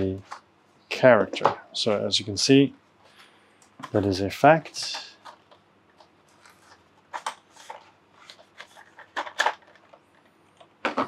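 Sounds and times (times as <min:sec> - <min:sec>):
packaging rustling: 0:04.9 - 0:11.0.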